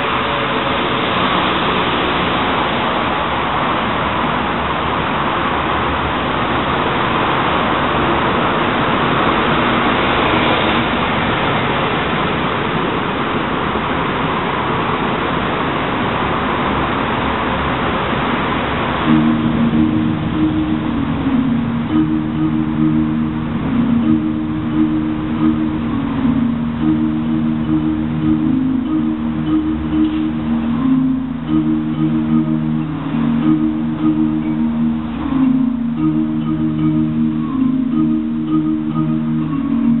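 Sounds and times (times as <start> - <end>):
road traffic hiss: 0.0 - 40.0
sustained chime-like tones: 19.0 - 40.0.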